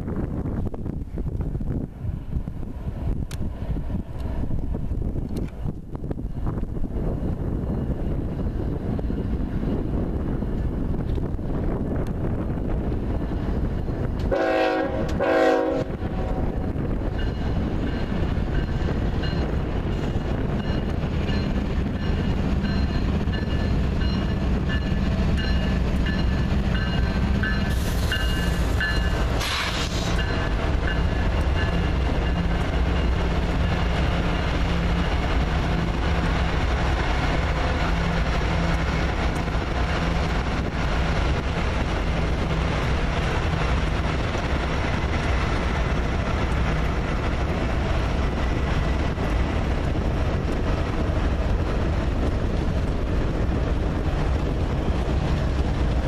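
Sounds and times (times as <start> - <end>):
locomotive engines droning: 0.0 - 56.0
train horn blast: 14.3 - 16.6.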